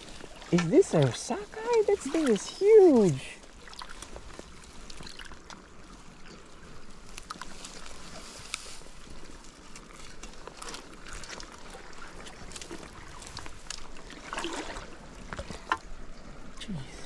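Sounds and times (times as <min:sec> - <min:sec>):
landing net rustling in wet grass: 0:00.0 - 0:15.8
river water flowing: 0:00.0 - 0:17.0.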